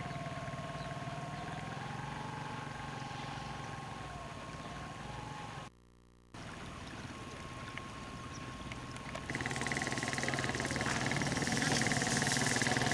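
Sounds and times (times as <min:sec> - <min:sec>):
high whine: 0:09.2 - 0:12.9.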